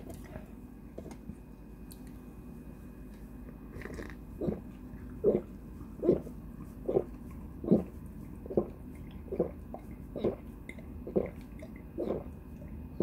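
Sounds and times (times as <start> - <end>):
person gulping a drink: 3.8 - 6.2, 6.9 - 12.4.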